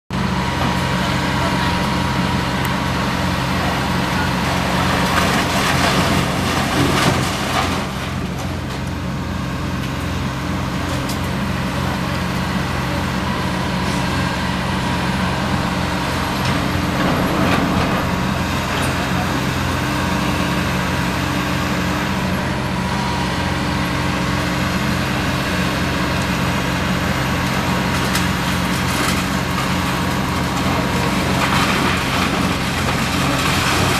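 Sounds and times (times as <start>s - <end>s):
excavator diesel engines running: 0.1s - 33.9s
debris crunching and crashing: 3.7s - 9.2s, 13.3s - 21.1s, 27.3s - 33.9s.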